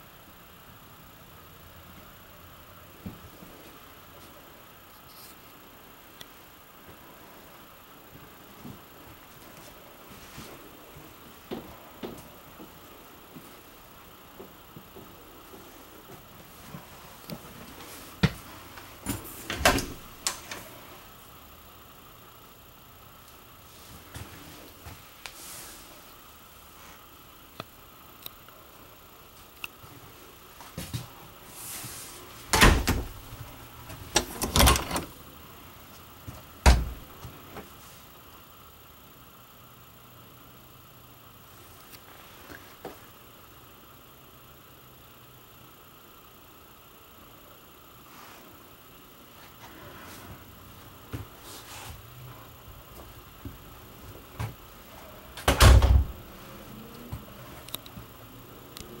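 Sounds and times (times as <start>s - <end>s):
door clunks and knocks: 32.5s - 33.2s, 36.6s - 37.0s, 55.4s - 56.2s.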